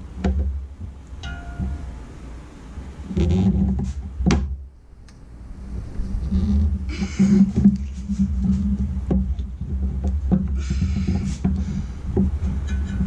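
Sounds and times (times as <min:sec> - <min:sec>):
steady low hum: 0:00.0 - 0:13.0
hoses rustling and scraping: 0:05.6 - 0:13.0.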